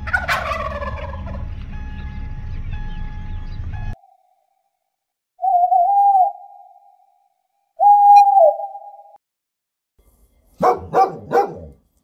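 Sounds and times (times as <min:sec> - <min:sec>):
owl hooting: 0:05.4 - 0:09.2.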